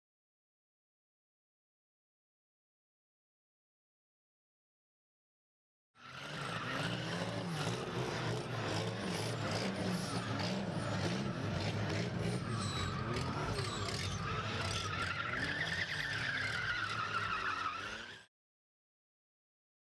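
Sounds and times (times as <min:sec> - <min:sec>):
car engine running hard: 0:06.0 - 0:18.1
tyres squealing: 0:06.1 - 0:18.3.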